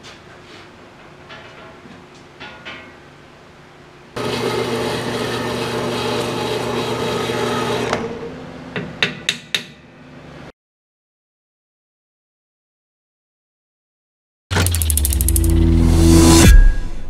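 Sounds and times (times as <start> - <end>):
saw grinding through steel: 4.2 - 7.9
bandsaw hum: 4.2 - 8.4
sharp clicks: 14.5 - 15.6.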